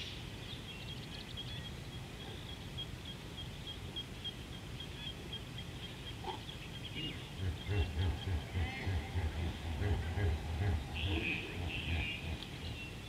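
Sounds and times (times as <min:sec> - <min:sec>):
low outdoor rumble: 0:00.0 - 0:13.0
hippo grunts: 0:07.4 - 0:12.4.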